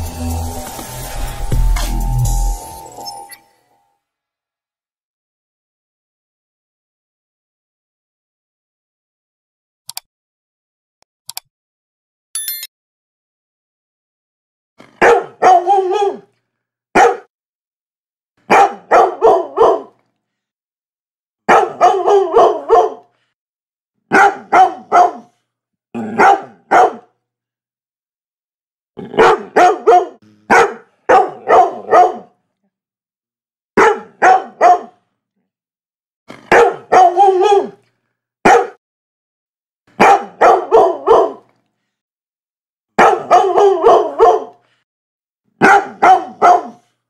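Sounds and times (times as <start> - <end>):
dog barking: 15.0 - 16.3, 16.9 - 17.3, 18.5 - 20.0, 21.5 - 23.1, 24.1 - 25.4, 26.0 - 27.2, 29.1 - 32.4, 33.8 - 35.0, 36.4 - 37.8, 38.4 - 38.8, 40.0 - 41.5, 43.0 - 44.6, 45.6 - 47.0.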